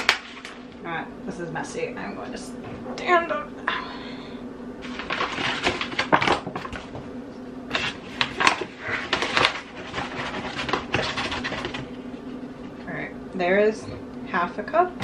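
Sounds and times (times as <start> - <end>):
faint steady hum: 0.0 - 15.0
paper bag crinkling: 4.8 - 6.9, 7.7 - 11.9.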